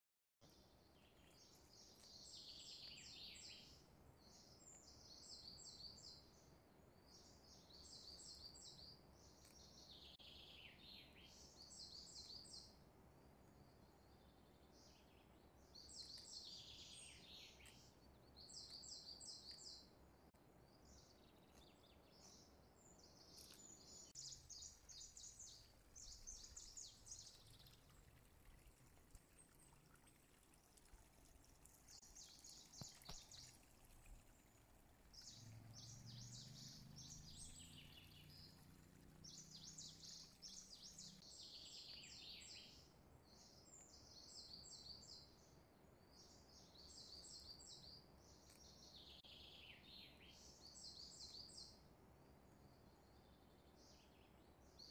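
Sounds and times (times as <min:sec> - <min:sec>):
bird singing trilled phrases: 0:13.6 - 0:19.9, 0:20.9 - 0:30.7, 0:31.4 - 0:45.4.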